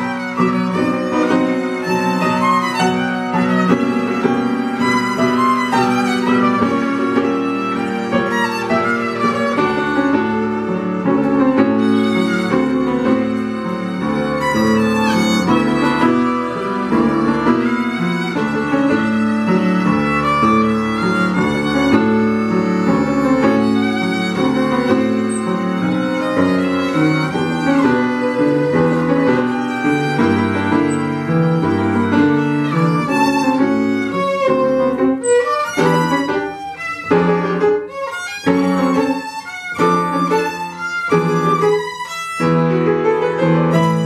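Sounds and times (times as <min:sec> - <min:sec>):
upright piano accompaniment: 0:00.0 - 0:44.0
violin melody with vibrato: 0:00.0 - 0:44.0.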